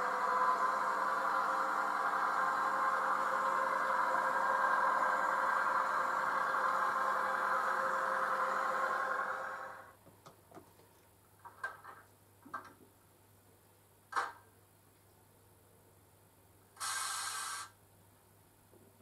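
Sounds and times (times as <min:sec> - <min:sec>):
model train engine running sound: 0:00.0 - 0:09.9.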